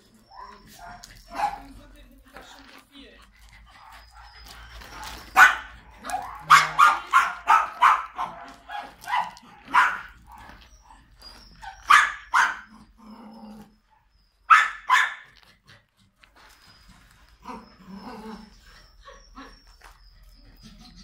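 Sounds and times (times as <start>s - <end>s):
quiet low dog sounds: 0.0s - 21.0s
dog barking sharply: 0.4s - 1.7s, 5.3s - 10.1s, 11.9s - 12.7s, 14.5s - 15.3s.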